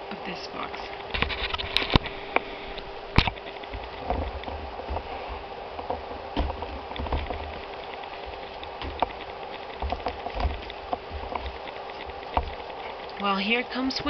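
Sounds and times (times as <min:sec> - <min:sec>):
faint steady hum: 0:00.0 - 0:14.0
soft knocks and rustling: 0:03.1 - 0:13.2.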